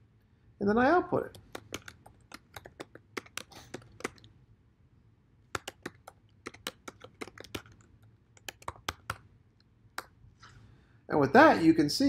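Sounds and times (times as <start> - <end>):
computer keyboard typing: 1.3 - 4.3, 5.5 - 9.3.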